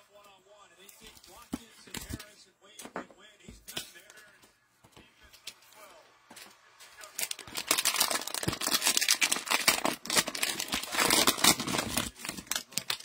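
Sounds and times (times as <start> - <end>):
cellophane wrapper crinkling: 7.0 - 13.0.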